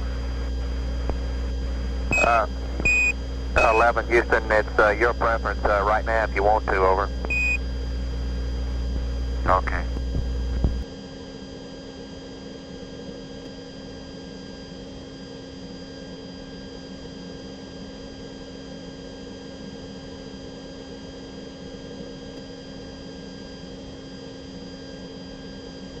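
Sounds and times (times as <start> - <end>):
steady hum: 0.0 - 11.0
faint high steady tones: 1.4 - 7.7.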